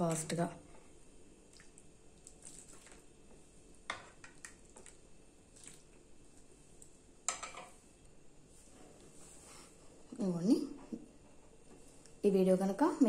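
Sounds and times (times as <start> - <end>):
liquid splashing: 1.5 - 3.1, 4.2 - 6.0.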